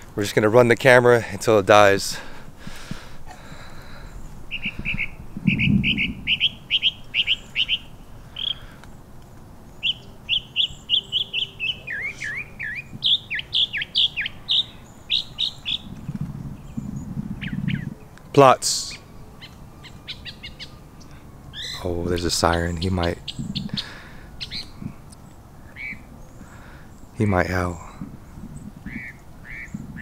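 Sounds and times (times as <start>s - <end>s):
songbird chirping: 0.0s - 30.0s
low rumble: 2.3s - 7.1s.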